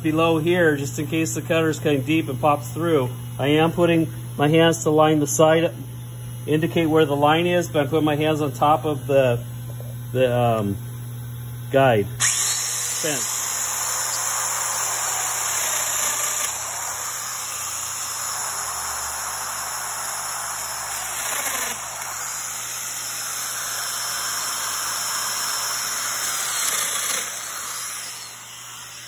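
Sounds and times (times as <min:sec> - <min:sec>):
joiner cutting into plywood: 0:12.2 - 0:18.6
dust extractor hissing: 0:12.2 - 0:29.0.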